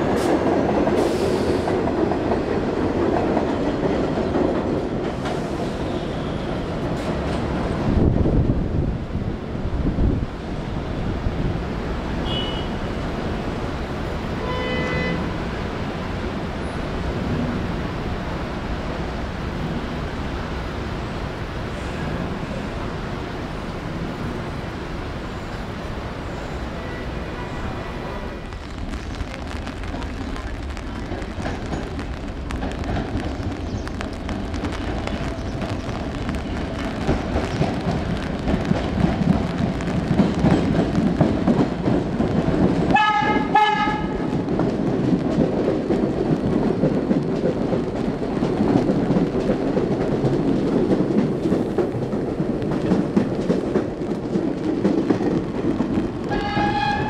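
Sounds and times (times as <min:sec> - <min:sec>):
subway trains rumbling: 0:00.0 - 0:57.0
train horn toot: 0:12.2 - 0:12.9, 0:14.4 - 0:15.4, 0:26.7 - 0:28.3, 0:42.9 - 0:44.2, 0:56.3 - 0:57.0.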